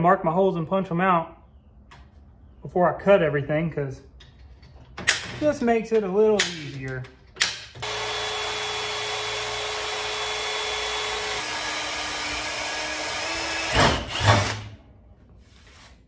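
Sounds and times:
electric drill boring steel: 7.8s - 14.7s.

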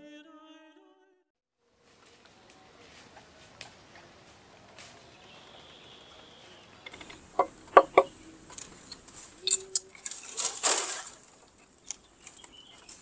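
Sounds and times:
footsteps on dry litter: 1.7s - 13.0s
dry twigs snapping: 6.8s - 13.0s.

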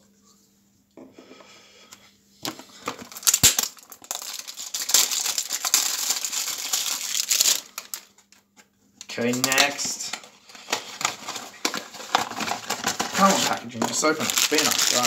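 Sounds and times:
plastic packaging crinkling: 2.4s - 8.3s, 9.1s - 15.0s.

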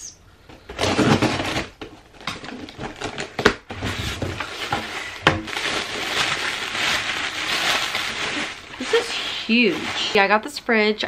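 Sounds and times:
package rustling and scraping: 0.5s - 10.4s.

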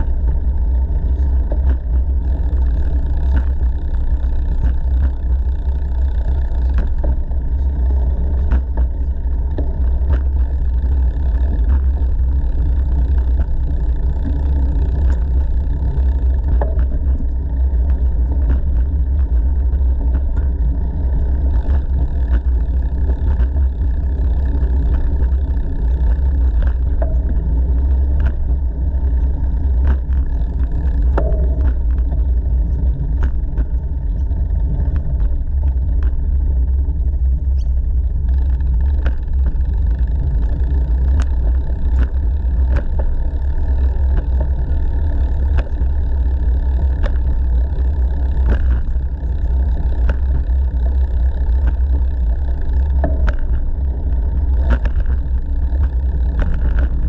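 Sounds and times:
bicycle tyres rolling on concrete: 0.0s - 57.0s.

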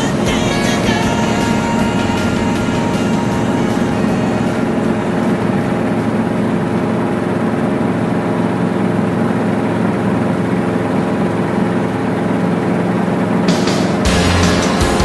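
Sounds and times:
helicopter engine and rotor drone: 0.0s - 14.2s.

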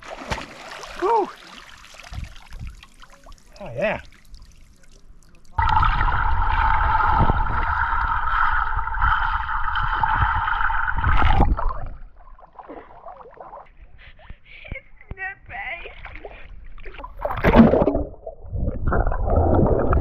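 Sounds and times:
underwater gurgling and rumble: 5.6s - 13.6s, 16.5s - 20.0s.

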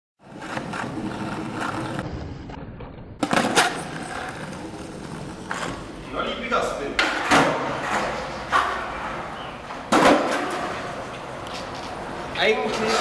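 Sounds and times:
skateboard wheels rolling on stone: 0.2s - 13.0s
skateboard clacks: 9.7s - 12.0s.

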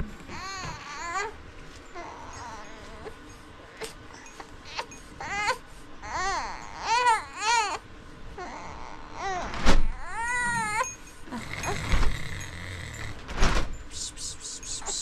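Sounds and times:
baby babbling and crying: 0.3s - 1.4s, 2.0s - 3.2s, 4.7s - 7.8s, 8.4s - 10.9s.

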